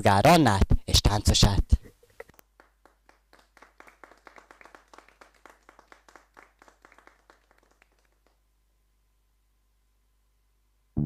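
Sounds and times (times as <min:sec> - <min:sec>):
people clapping: 0:02.3 - 0:08.5.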